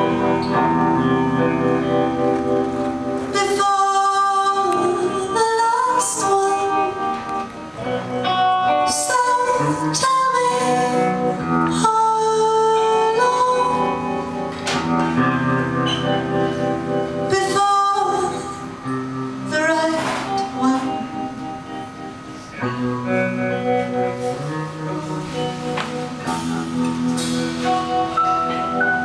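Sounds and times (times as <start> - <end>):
instrumental accompaniment: 0.0 - 29.0
woman singing into a microphone: 3.2 - 7.6, 8.6 - 15.2, 17.1 - 21.4.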